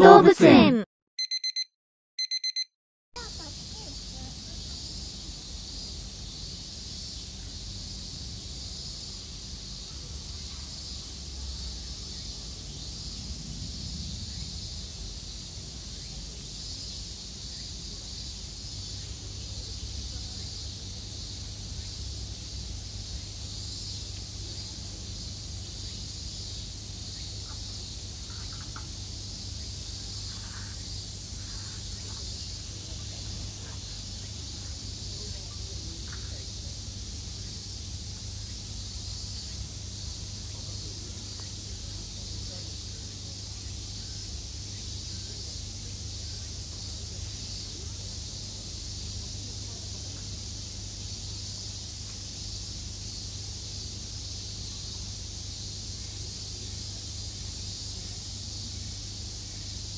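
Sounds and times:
cicadas droning: 3.2 - 59.9.

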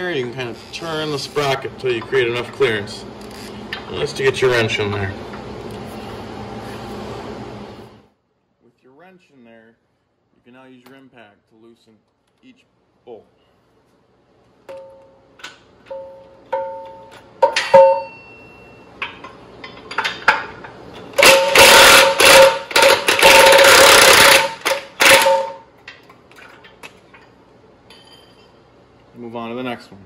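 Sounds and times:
impact driver whirring: 21.2 - 25.3
impact driver hammering: 21.2 - 25.6.

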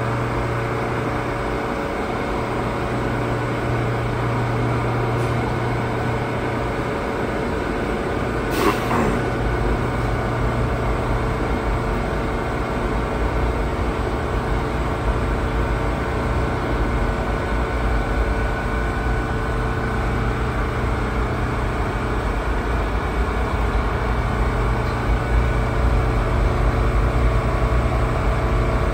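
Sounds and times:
subway train equipment humming: 0.0 - 28.9.

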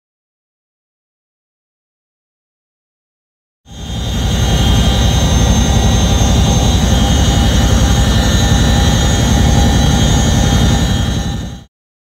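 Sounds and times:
helicopter rotors and engines beating: 3.7 - 11.7
high transmission whine: 3.7 - 11.7.

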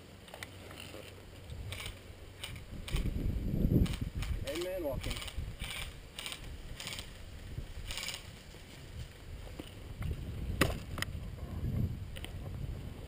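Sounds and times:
sharp clicks: 0.3 - 3.1, 3.8 - 7.1
footsteps crunching on grass: 6.4 - 11.0.

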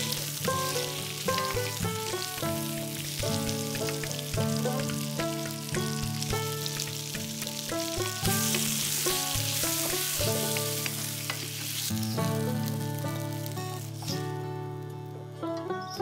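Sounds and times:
wooden spatula in pan: 0.0 - 12.0
food sizzling in oil: 0.0 - 14.7
plucked-string background music: 0.0 - 16.0.

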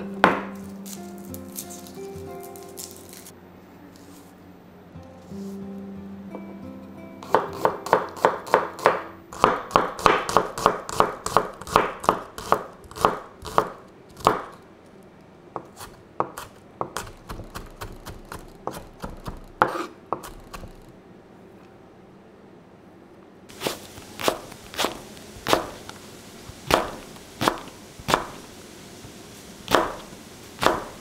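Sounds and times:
knife chopping on wooden board: 7.2 - 14.6, 15.6 - 20.8, 23.5 - 25.8, 26.6 - 28.4, 29.7 - 31.0.

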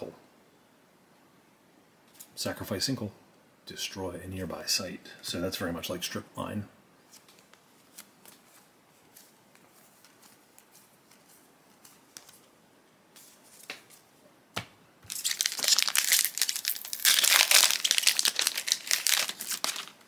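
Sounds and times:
foil wrapper crinkling and tearing: 15.1 - 20.0.

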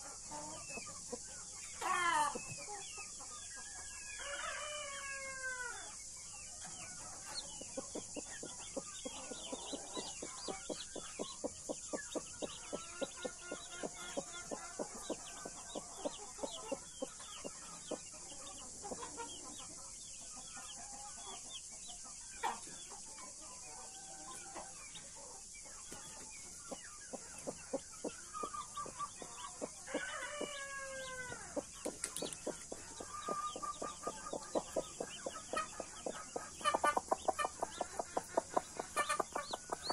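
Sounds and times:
chicks peeping: 0.0 - 39.9
hen clucking: 7.4 - 19.5, 26.6 - 39.9.

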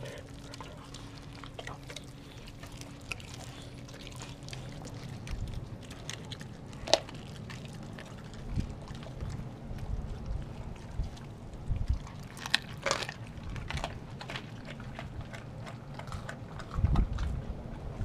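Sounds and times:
dogs licking and gnawing: 0.0 - 18.0.

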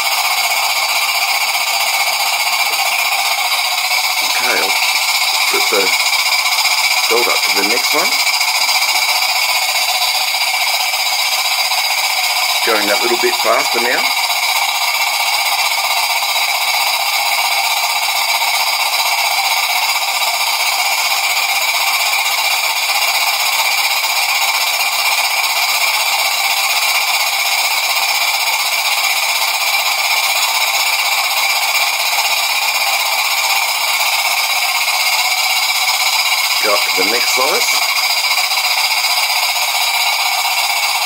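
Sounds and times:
toy steam engine hissing: 0.0 - 41.0.

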